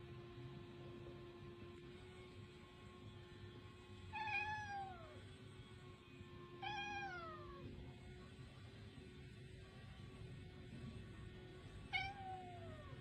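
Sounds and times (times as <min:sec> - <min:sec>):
cat meowing: 0:04.2 - 0:05.2, 0:06.6 - 0:07.7, 0:11.9 - 0:13.0.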